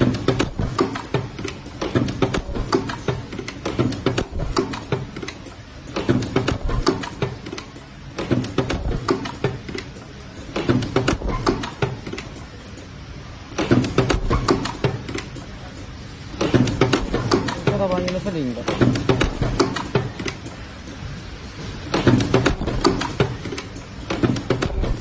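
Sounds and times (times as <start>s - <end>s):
welding machine clicks and clacks: 0.0s - 25.0s.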